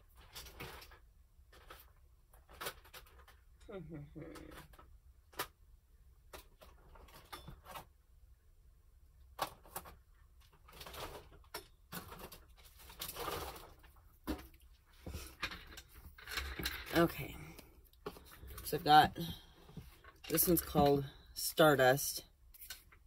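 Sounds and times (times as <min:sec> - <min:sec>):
craft supplies knocking and rustling: 0:09.3 - 0:21.2.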